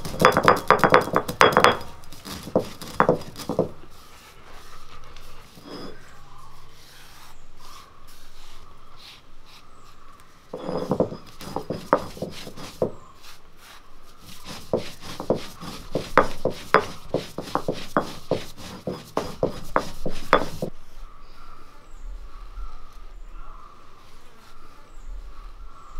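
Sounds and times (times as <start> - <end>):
peppercorns cracking under stone: 0.0 - 3.8
stone roller rubbing on slab: 0.0 - 8.6, 10.5 - 20.8.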